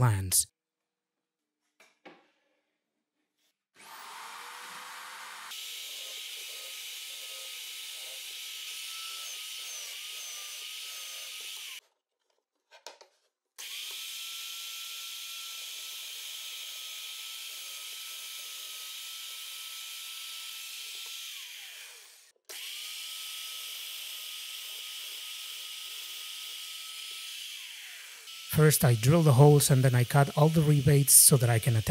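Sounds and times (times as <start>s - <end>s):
drill press motor whining: 3.8s - 11.8s
motor winding down: 27.2s - 31.9s.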